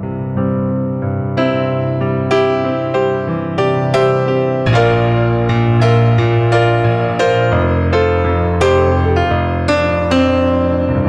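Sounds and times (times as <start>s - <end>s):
slow music of sustained chords: 4.4s - 9.6s
chord struck: 4.6s - 9.0s.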